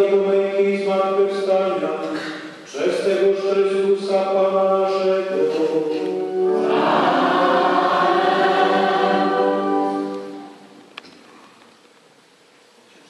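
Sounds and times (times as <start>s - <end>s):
choir chanting in church: 3.7s - 10.8s.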